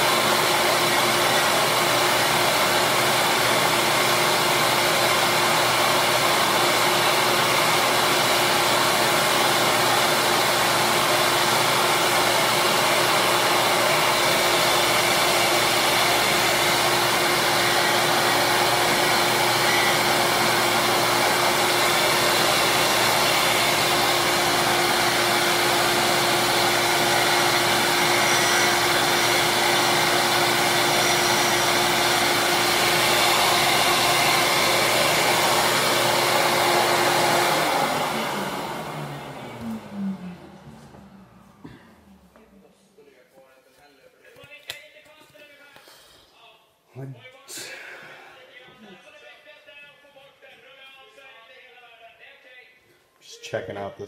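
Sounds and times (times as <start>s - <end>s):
disc sander running: 0.0s - 42.4s.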